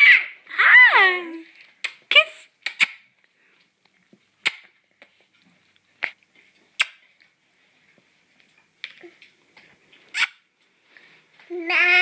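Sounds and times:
baby making kissing sounds: 2.6 - 3.0, 4.4 - 4.7, 6.8 - 7.0, 10.1 - 10.4.

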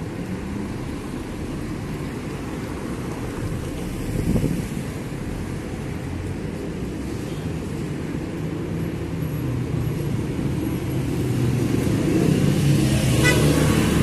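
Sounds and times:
street traffic rumble: 0.0 - 14.0.

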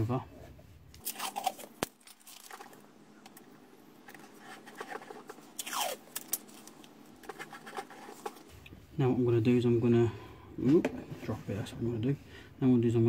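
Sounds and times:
masking tape ripping off roll: 5.6 - 6.8.

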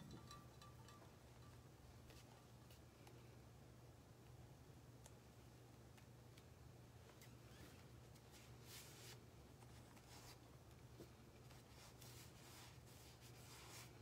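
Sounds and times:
soft rustling of sheets: 6.9 - 14.0.

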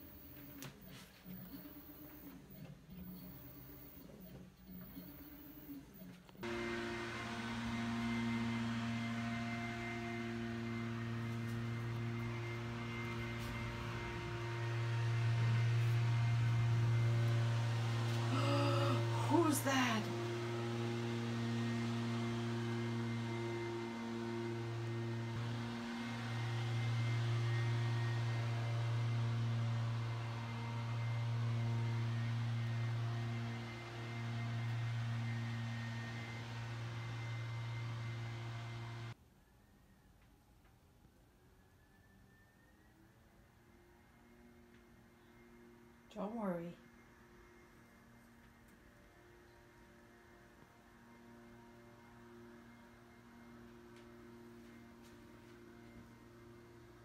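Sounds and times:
motor-driven machine humming: 0.0 - 39.2
muffled leaf blower engine: 6.4 - 39.2, 44.6 - 57.0.

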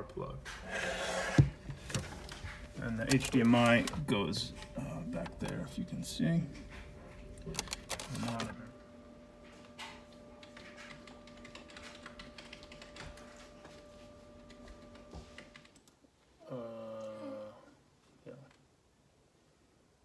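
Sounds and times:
faint steady hum: 0.0 - 20.0
keyboard keys clicking: 10.4 - 13.3.

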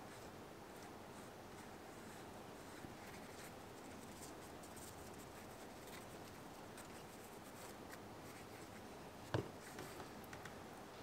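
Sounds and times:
scratchy paintbrush strokes: 0.0 - 9.0.

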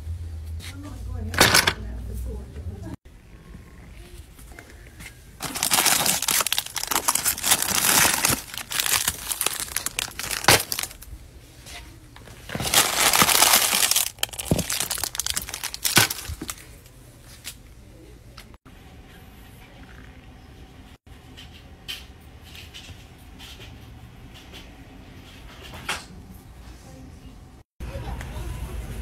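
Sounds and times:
crinkling rustling handling noise: 4.4 - 17.6.

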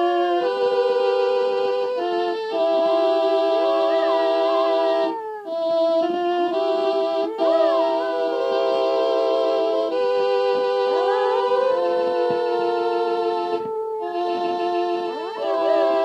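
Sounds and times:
slow hymn chords: 0.0 - 16.0
dog howling: 3.4 - 9.9, 10.9 - 16.0.

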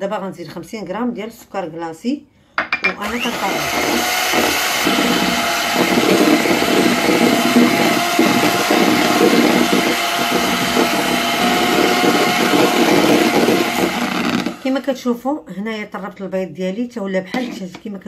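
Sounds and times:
electric hand mixer running: 3.0 - 14.8.

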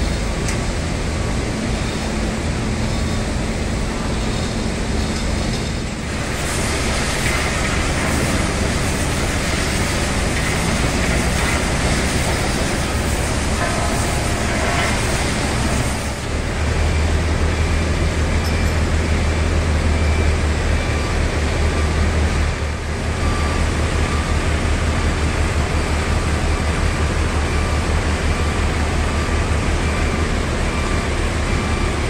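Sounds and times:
water jet spray hissing: 6.1 - 16.4.

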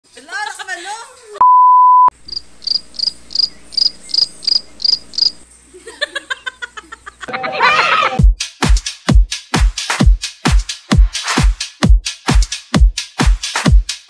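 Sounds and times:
cricket chirps: 2.2 - 5.6
voices: 7.3 - 8.2
dance music with heavy bass beat: 8.0 - 14.0.

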